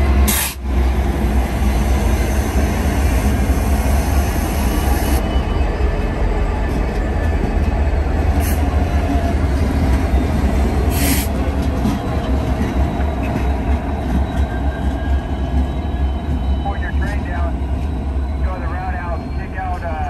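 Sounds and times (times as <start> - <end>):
diesel locomotive engine rumble: 0.0 - 20.0
train wheels rolling on rail: 0.0 - 20.0
short air hiss: 0.3 - 0.6.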